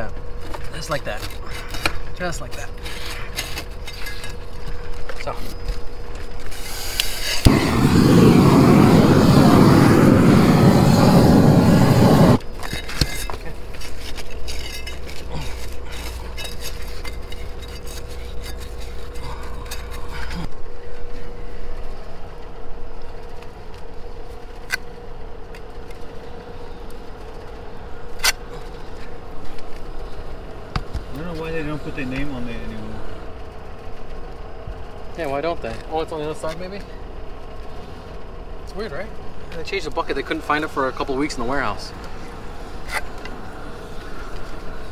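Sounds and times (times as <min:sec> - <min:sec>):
roofing torch flame roaring: 0:00.0 - 0:44.9
low hum: 0:00.1 - 0:35.2
trowel scraping: 0:12.6 - 0:20.2.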